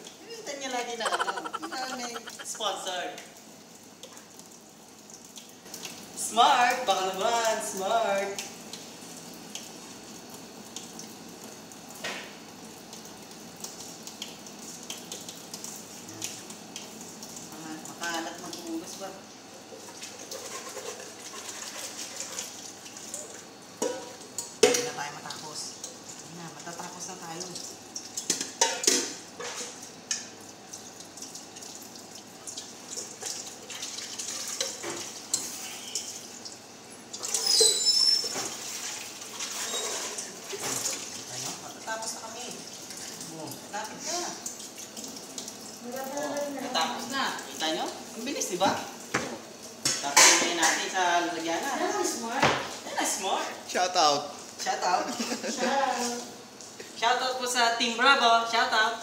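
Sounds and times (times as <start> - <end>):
tap water running into sink: 2.6 - 52.8
pot being scrubbed: 19.9 - 22.6, 37.3 - 41.1.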